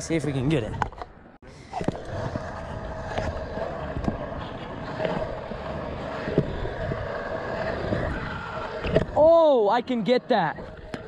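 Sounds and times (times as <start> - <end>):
scooter wheels rolling on concrete: 0.0 - 11.0
wind on microphone: 1.8 - 9.2
scooter clacking over edges: 1.8 - 9.3.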